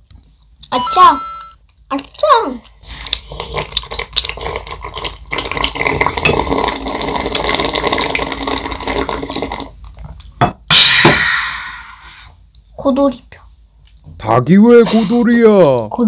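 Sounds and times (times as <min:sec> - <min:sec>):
child slurping broth: 0:02.9 - 0:09.7.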